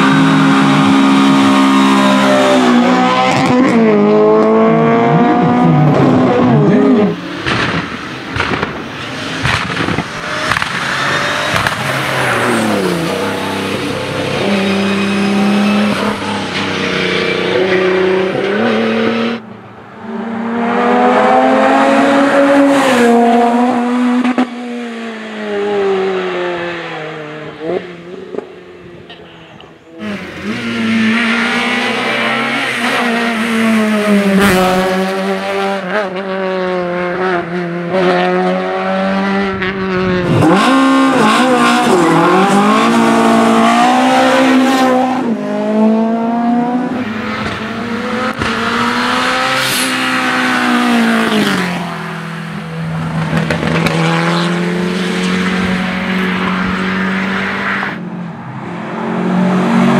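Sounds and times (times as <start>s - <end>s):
race car engines revving: 0.0s - 59.9s.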